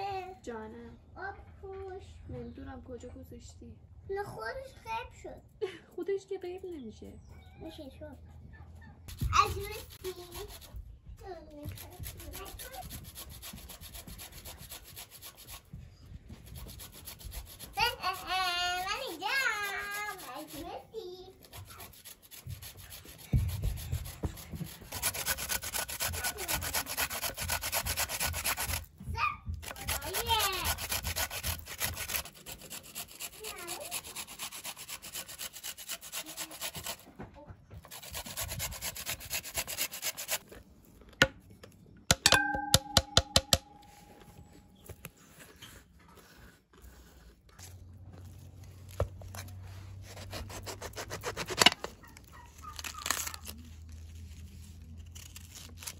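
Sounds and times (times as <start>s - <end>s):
carrot rasping on grater: 9.1s - 10.8s, 11.7s - 15.7s, 16.5s - 28.9s, 29.6s - 37.1s, 37.9s - 40.4s, 49.5s - 52.0s.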